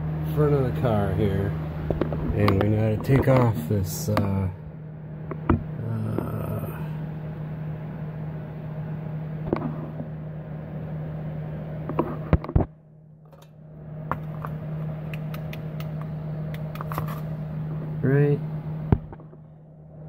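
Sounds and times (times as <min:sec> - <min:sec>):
steady low hum: 0:00.0 - 0:20.0
sharp clicks and knocks: 0:14.1 - 0:17.2.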